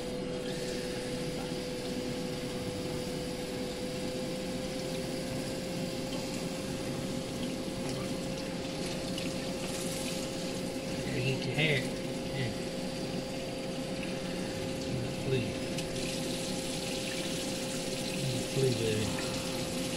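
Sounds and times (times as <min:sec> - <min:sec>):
constant hum: 0:00.0 - 0:19.9
faucet water splashing into sink: 0:07.3 - 0:12.3, 0:13.3 - 0:19.9.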